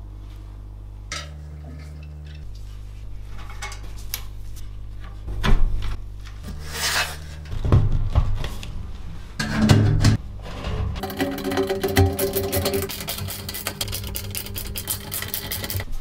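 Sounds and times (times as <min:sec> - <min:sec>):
cpu cooler scraping and clicking: 0:10.5 - 0:15.9.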